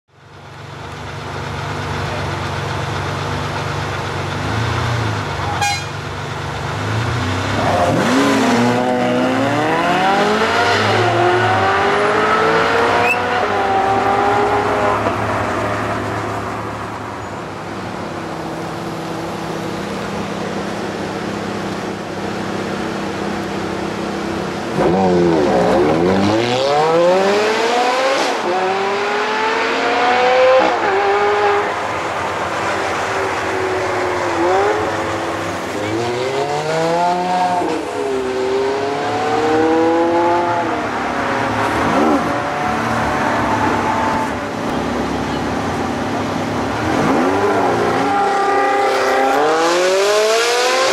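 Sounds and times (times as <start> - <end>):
car engine idling: 0.1 - 7.4, 13.9 - 24.8
car engine revving: 6.6 - 50.9
cars accelerating away: 6.7 - 17.1, 24.5 - 50.9.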